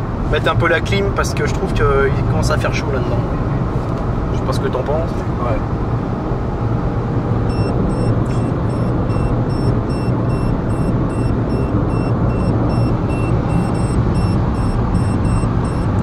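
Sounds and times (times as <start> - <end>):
road and engine drone: 0.0 - 16.0
dashboard warning chime beeping: 7.5 - 16.0.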